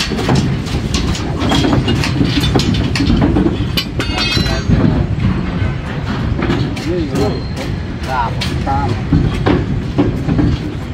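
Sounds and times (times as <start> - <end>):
machinery rumbling: 0.0 - 10.9
metallic clanks and clicks: 0.0 - 10.9.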